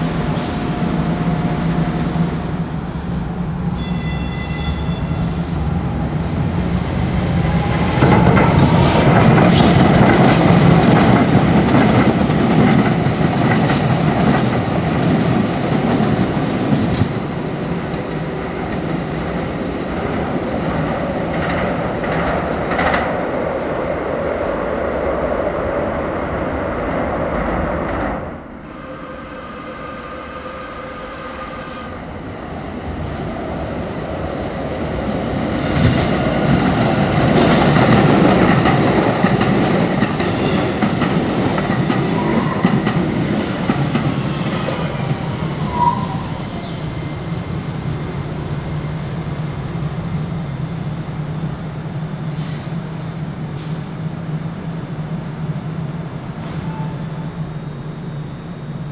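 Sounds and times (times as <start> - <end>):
train wheels rumbling and clicking: 0.0 - 24.0, 33.4 - 48.1.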